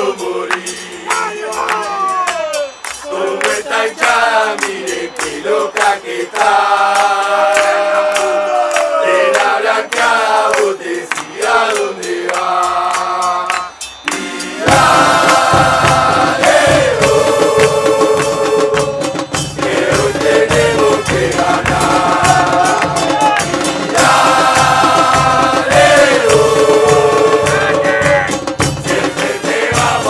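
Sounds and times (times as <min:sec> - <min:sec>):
men chanting in unison: 0:00.0 - 0:30.0
heavy low drumming: 0:14.6 - 0:30.0.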